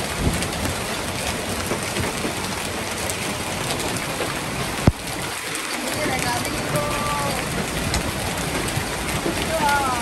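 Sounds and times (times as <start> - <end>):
hail pattering on ground: 0.0 - 10.0.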